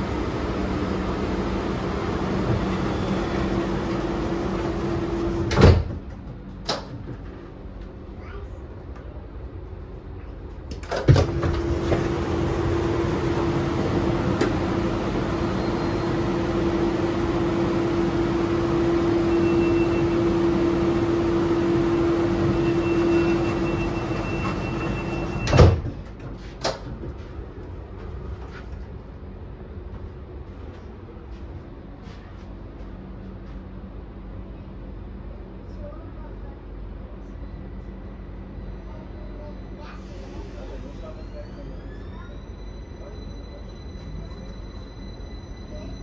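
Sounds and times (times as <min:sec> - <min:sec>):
train doors shutting thump: 0:02.4 - 0:07.5, 0:10.7 - 0:12.4, 0:14.2 - 0:14.8, 0:22.4 - 0:27.3
train doors opening knock: 0:02.4 - 0:07.6, 0:10.7 - 0:12.2, 0:22.5 - 0:27.2
loud steady hum: 0:10.7 - 0:25.9.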